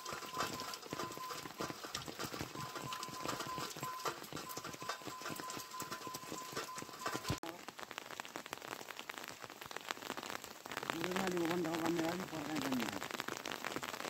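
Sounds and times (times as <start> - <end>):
raindrops striking close by: 0.0 - 14.0
steady rain: 0.0 - 14.0.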